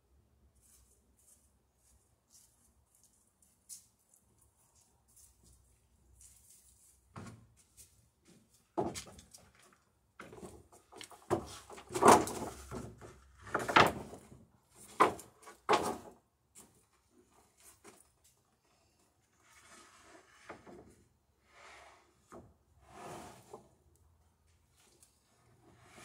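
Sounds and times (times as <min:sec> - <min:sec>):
wooden plank knocks and scrapes: 0:08.8 - 0:09.6, 0:10.2 - 0:16.2, 0:19.6 - 0:21.0.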